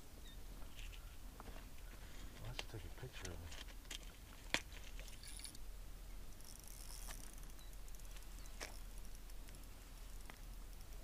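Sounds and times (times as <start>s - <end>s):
lures rattling: 3.5s - 5.6s, 6.4s - 11.0s.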